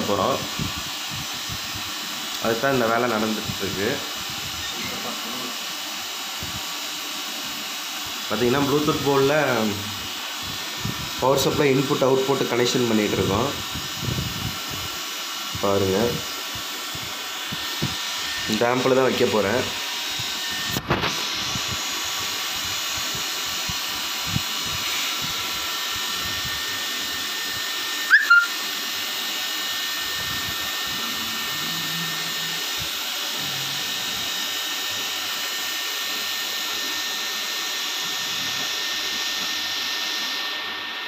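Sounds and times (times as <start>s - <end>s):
small electric motor whirring: 3.3s - 5.6s, 15.8s - 40.6s.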